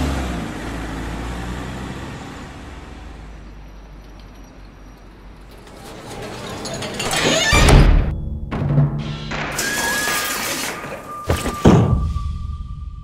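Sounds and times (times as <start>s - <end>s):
truck driving past: 0.0s - 7.0s.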